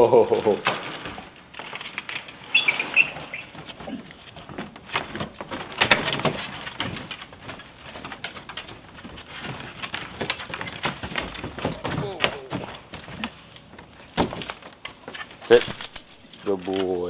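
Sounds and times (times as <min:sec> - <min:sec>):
dog claws clicking on wooden deck: 0:01.5 - 0:17.0
short high squeaks: 0:02.4 - 0:04.0.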